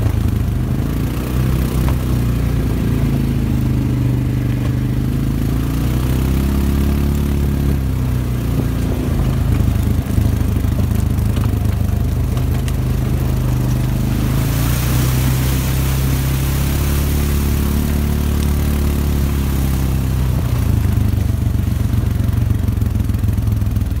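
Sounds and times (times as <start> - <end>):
atv engine running: 0.0 - 24.0
hissing rush: 13.4 - 19.6.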